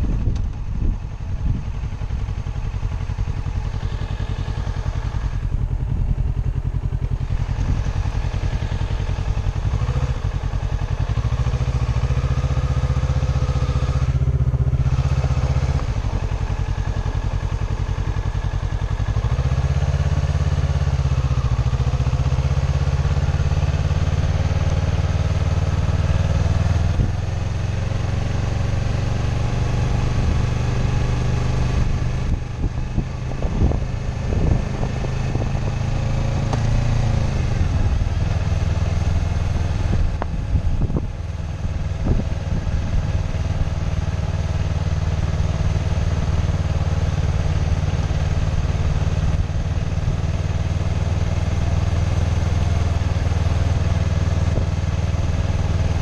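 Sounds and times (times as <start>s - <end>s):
wind on microphone: 0.0s - 1.9s, 31.8s - 35.7s, 39.4s - 43.2s
motorcycle engine revving: 0.0s - 56.0s.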